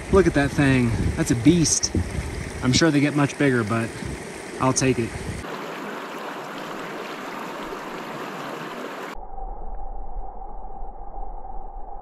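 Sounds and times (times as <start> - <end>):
river water rushing: 1.6 - 9.2.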